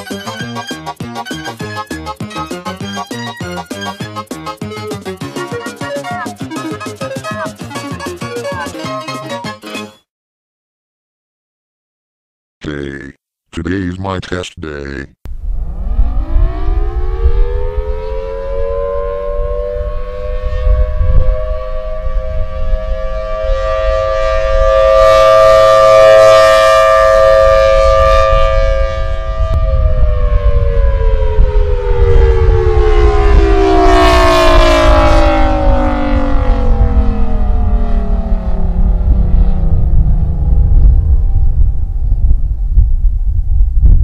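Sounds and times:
tornado warning siren wailing: 0.0 - 9.4, 15.3 - 44.0
low rumble: 15.3 - 24.7, 27.5 - 44.0.

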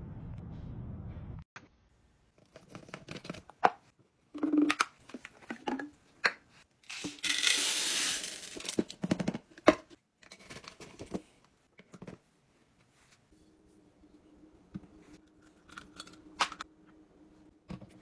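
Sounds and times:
beads pouring into plastic canister: 6.9 - 8.8.

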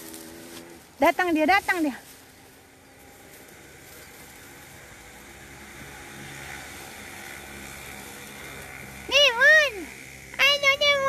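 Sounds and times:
distant engine hum: 0.0 - 11.0.

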